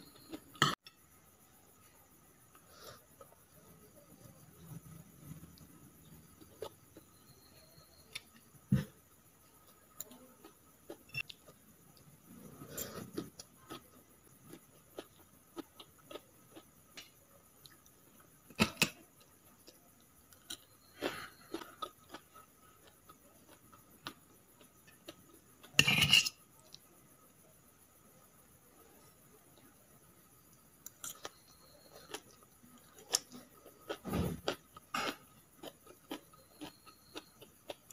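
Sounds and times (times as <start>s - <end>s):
soft chewing: 2.5s - 18.4s, 19.1s - 25.8s, 28.8s - 37.9s
fork clinking on plates: 25.8s - 26.4s.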